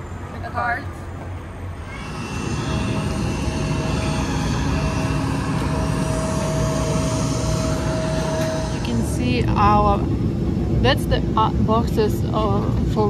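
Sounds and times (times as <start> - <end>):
jet aircraft rumble: 1.6 - 13.0
thin steady tone: 2.1 - 10.2.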